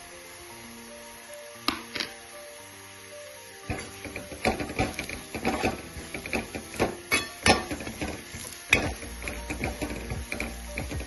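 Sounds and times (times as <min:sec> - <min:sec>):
metal spatula scraping a pan: 0:03.7 - 0:11.0.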